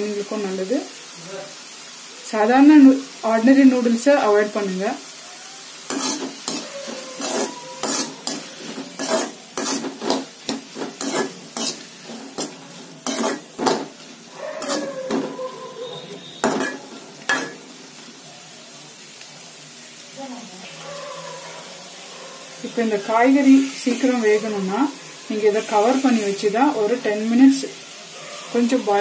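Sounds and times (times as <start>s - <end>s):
vegetables sizzling: 0.0s - 29.0s
spatula scraping a metal pan: 5.9s - 17.7s.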